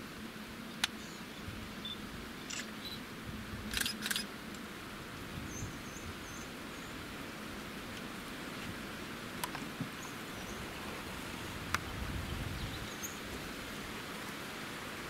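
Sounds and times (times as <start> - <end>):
soft even bush hiss: 0.0 - 15.0
sharp clicks: 3.7 - 4.3.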